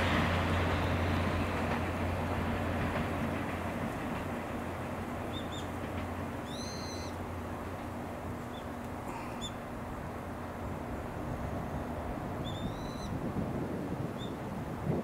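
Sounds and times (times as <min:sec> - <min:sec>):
distant train rumble: 0:00.0 - 0:15.0
birds chirping: 0:05.3 - 0:05.8, 0:06.4 - 0:07.2, 0:08.4 - 0:09.7, 0:12.4 - 0:13.2.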